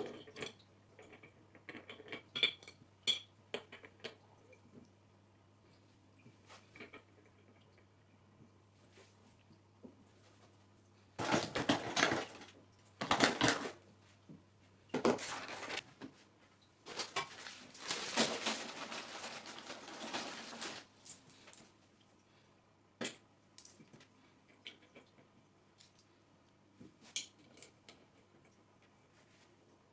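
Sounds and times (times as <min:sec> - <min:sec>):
rattling and scraping: 0:16.9 - 0:20.9.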